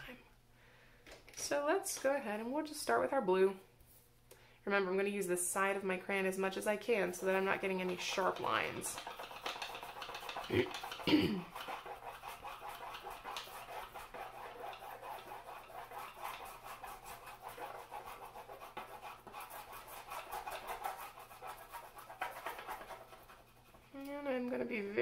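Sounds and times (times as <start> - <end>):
crayon scratching on paper: 6.4 - 24.0.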